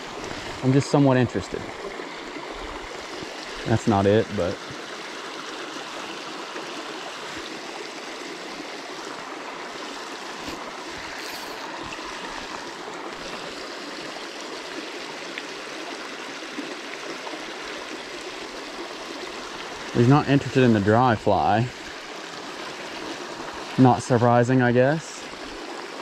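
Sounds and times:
creek flowing over stones: 0.0s - 26.0s
fly line swishing: 10.4s - 12.7s.

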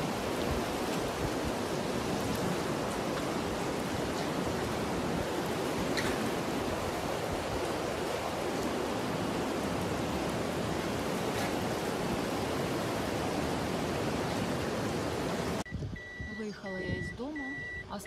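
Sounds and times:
floodwater rushing: 0.0s - 15.7s.

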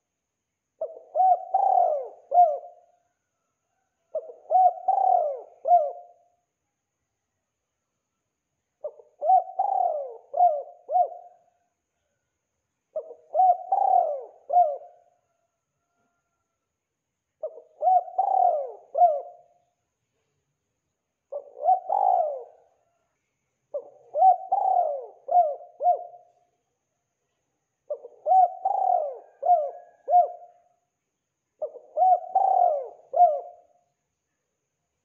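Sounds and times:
dove cooing: 0.8s - 3.0s, 4.1s - 6.4s, 8.8s - 11.6s, 12.9s - 15.4s, 17.4s - 19.6s, 21.3s - 22.9s, 23.7s - 26.4s, 27.9s - 30.7s, 31.6s - 33.8s.

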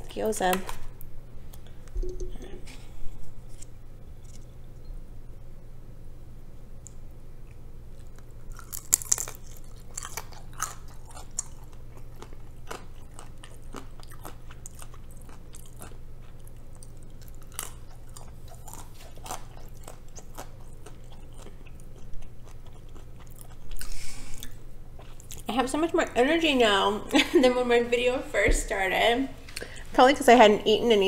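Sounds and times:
chewing and crunching dumpling: 7.4s - 25.5s.

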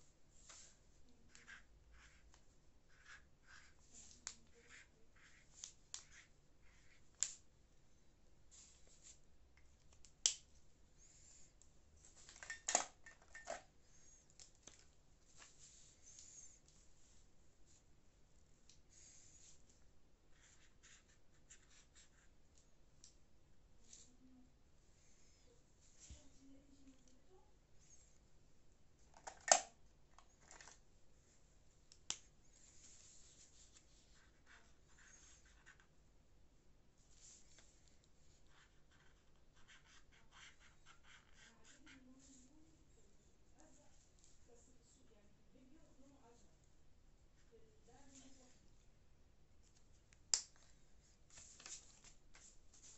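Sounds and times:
markers and paper handled: 0.4s - 7.5s, 11.0s - 16.8s, 18.7s - 23.2s, 29.0s - 30.8s, 31.9s - 36.0s, 37.1s - 42.6s, 49.6s - 52.9s
marker caps clicking: 29.2s - 29.7s
paper rustling: 50.6s - 52.9s.

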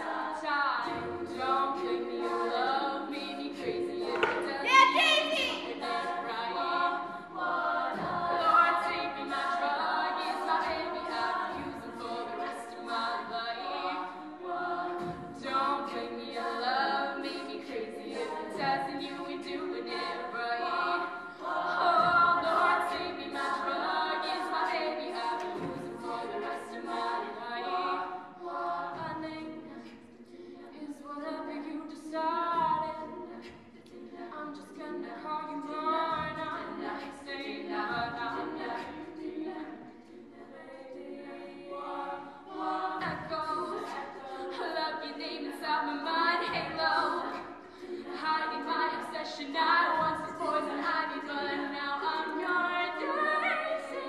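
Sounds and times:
women singing a cappella: 0.0s - 54.0s.

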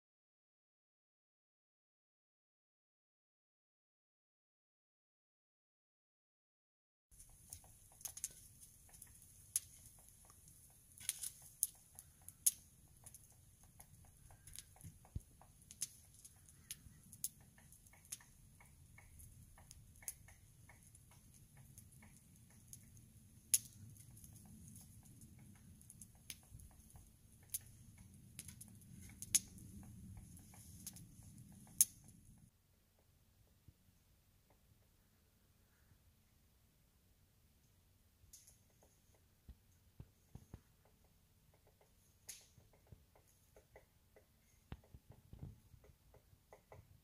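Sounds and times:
sharp ticks and taps: 7.2s - 33.1s, 38.3s - 46.9s.

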